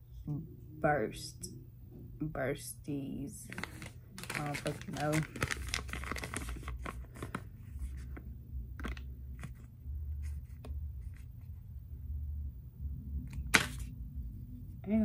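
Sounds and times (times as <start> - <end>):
foil packet crinkling: 3.4 - 8.1.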